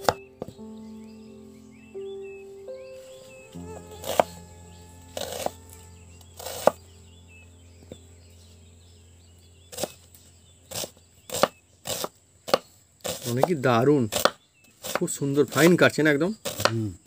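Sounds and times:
knife cutting on chopping board: 14.2 - 15.0.

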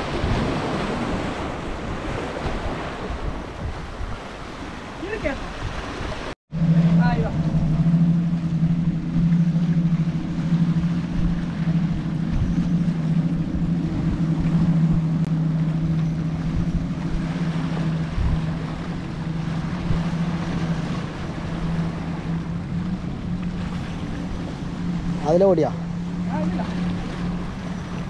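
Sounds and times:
waves washing against rocks: 0.0 - 6.4
motorboat engine humming: 0.0 - 28.0
wind rumbling on microphone: 0.0 - 28.0.

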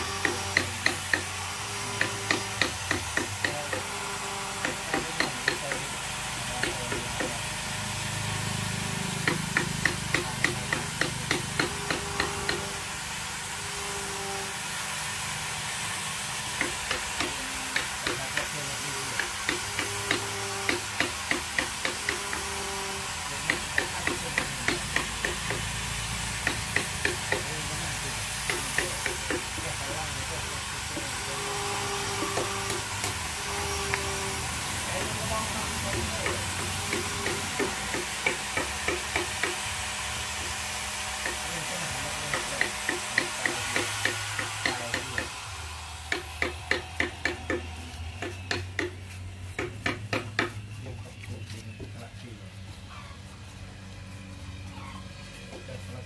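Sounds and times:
paintbrush scrubbing wood: 15.8 - 39.7, 47.0 - 56.0
paintbrush dabbing wood: 23.3 - 30.2, 46.9 - 56.0.

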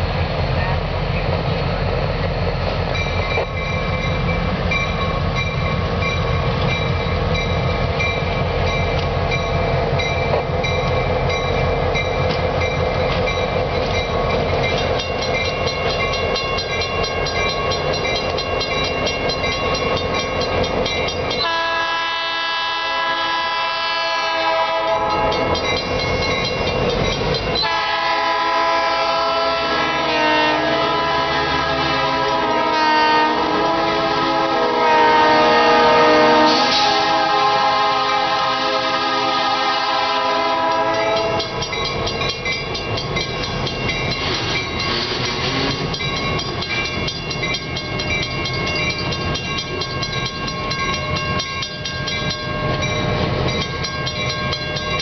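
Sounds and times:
diesel locomotive engine: 0.0 - 55.0
locomotive air horn chord: 21.4 - 25.5, 27.6 - 41.5.

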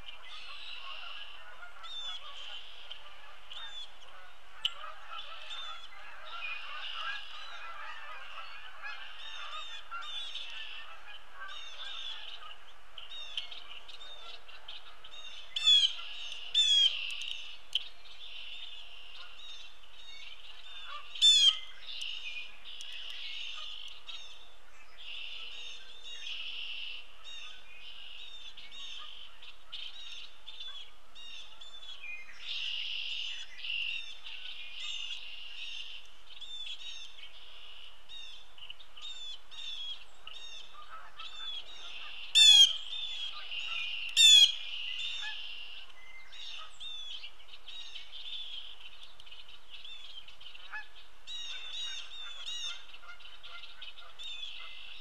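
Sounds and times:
wild birds chorus: 0.0 - 55.0
loud harsh bird calls: 39.0 - 47.1.

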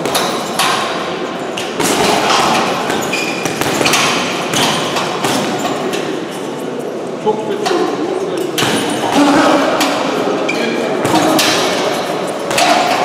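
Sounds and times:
steady background noise: 0.0 - 13.0
gloves punching heavy bag: 1.8 - 5.8, 11.0 - 13.0.

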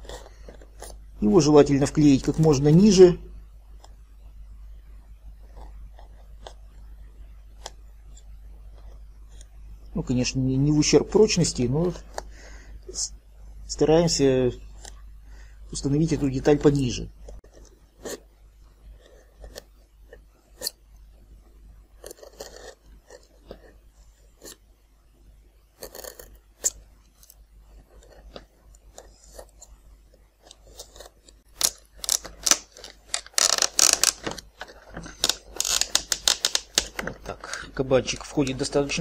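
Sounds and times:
hobby knife scraping foam: 22.0 - 23.8, 25.8 - 28.4, 30.5 - 34.1
plastic crackling and creaking: 30.5 - 39.0.

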